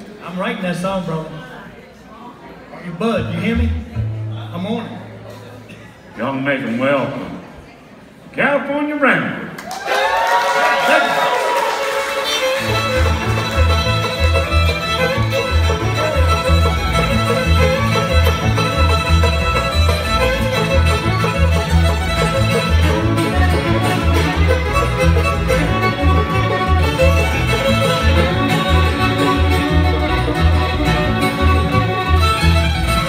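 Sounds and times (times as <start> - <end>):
acoustic guitar: 2.9 - 7.4, 12.0 - 33.0
fiddle: 11.6 - 33.0.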